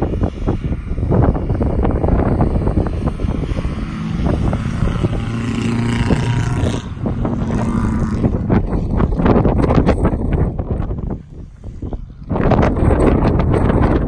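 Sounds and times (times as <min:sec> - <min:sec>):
exhaust popping and backfiring: 0:00.0 - 0:14.0
diesel car driving past: 0:02.3 - 0:09.1.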